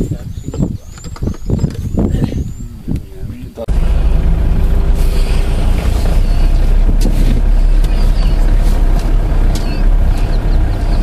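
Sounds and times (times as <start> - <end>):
vehicle engine idling: 3.7 - 11.0.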